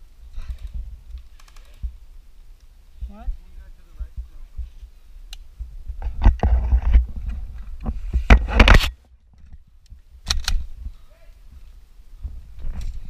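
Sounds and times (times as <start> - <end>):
knocks and scraping: 5.8 - 9.7.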